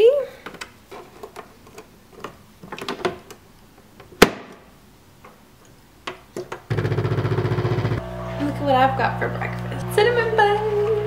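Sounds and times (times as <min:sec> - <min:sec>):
clicks and knocks of handling: 0:00.4 - 0:04.6, 0:05.2 - 0:06.7
coffee machine pump buzzing: 0:06.7 - 0:11.0.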